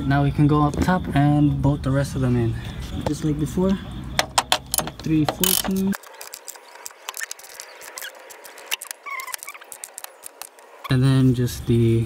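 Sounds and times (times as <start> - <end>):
socket ratchet clicking: 4.2 - 10.6.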